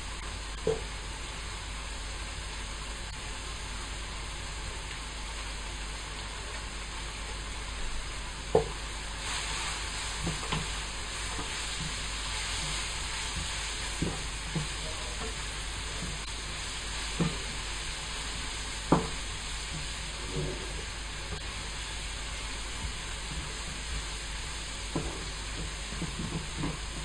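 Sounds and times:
onions sizzling in frying pan: 0.0s - 27.0s
wooden spatula knocking on pan: 8.5s - 8.8s, 18.9s - 19.9s, 24.9s - 27.0s.

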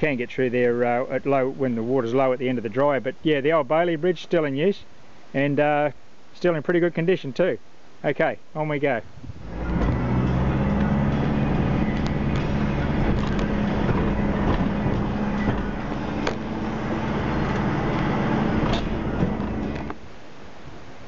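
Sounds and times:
tyre and road rumble: 9.1s - 20.8s
vehicle engine hum: 9.1s - 21.0s
sharp knocks from bumps: 12.0s - 16.5s.

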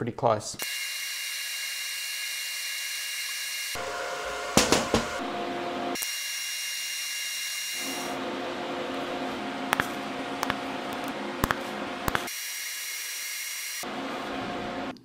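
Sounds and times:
welding arc hiss: 3.8s - 5.3s.

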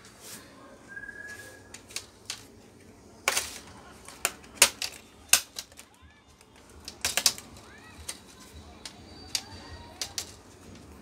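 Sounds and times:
plastic clicks and snaps: 4.0s - 10.9s.

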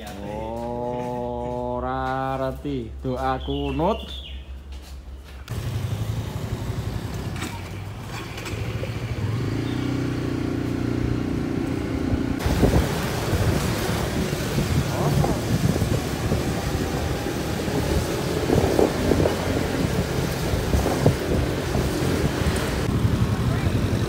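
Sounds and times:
motorcycle engine: 5.4s - 24.0s
wind buffeting microphone: 12.0s - 24.0s.

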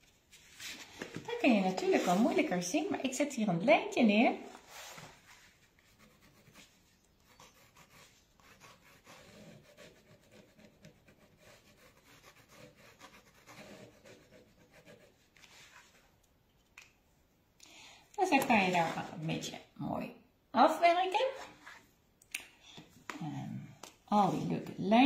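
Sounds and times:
pen scratching on paper: 5.8s - 15.9s.

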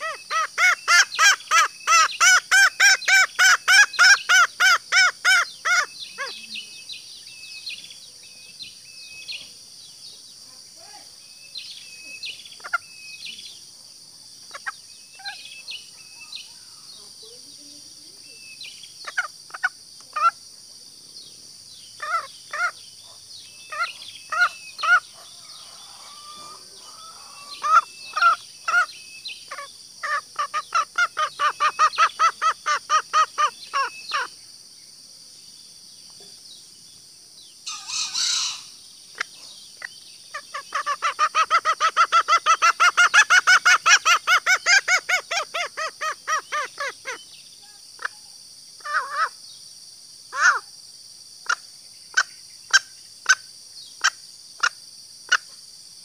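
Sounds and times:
junglefowl clucking: 0.0s - 6.4s, 23.7s - 28.9s, 29.5s - 34.3s, 37.7s - 47.2s
steady high hiss: 0.0s - 56.0s.

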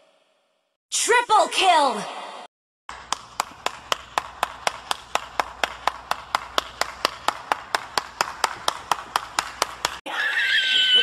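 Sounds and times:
person clapping hands: 2.9s - 10.0s.

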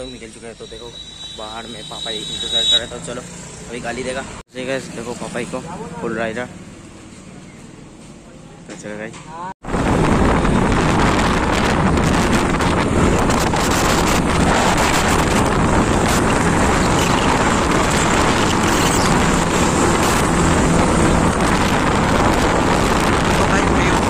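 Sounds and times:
road noise: 0.0s - 24.0s
wind buffeting microphone: 9.6s - 24.0s
motorcycle engine: 10.4s - 24.0s.

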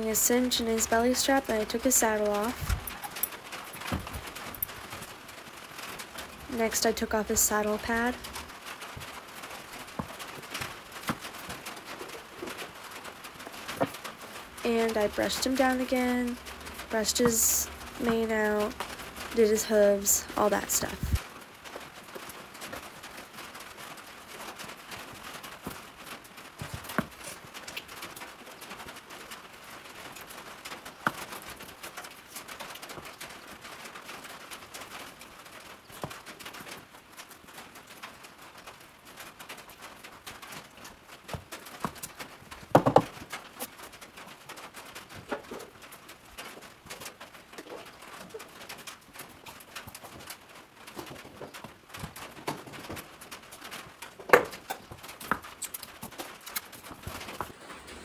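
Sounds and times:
horse hooves on concrete: 0.0s - 23.7s, 24.4s - 29.1s, 40.2s - 58.0s.

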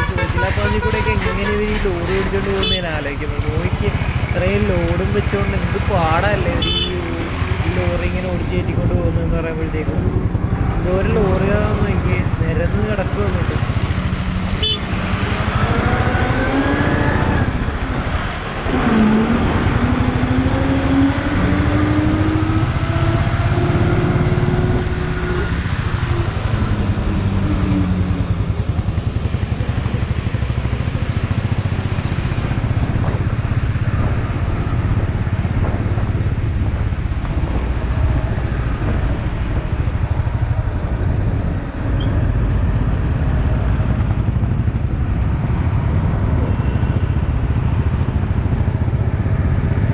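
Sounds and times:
motorcycle engine running: 9.8s - 15.8s, 26.7s - 36.8s.

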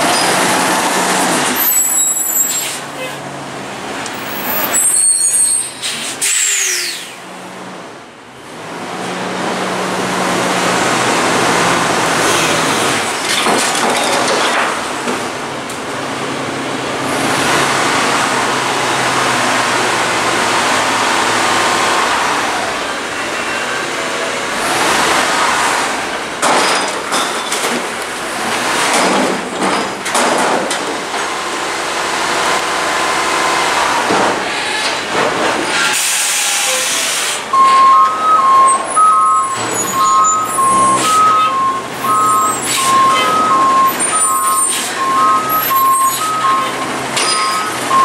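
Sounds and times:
garbage truck engine running hard: 7.3s - 48.0s
metal clanks and bangs: 13.0s - 15.2s, 28.8s - 31.3s.

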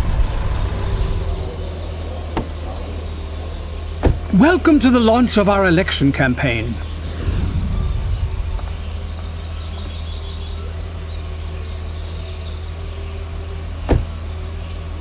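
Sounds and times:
low steady rumble: 0.0s - 5.0s, 6.1s - 15.0s
birds chirping: 0.0s - 15.0s
car door shutting: 2.3s - 2.7s, 4.0s - 4.4s, 13.8s - 14.2s.

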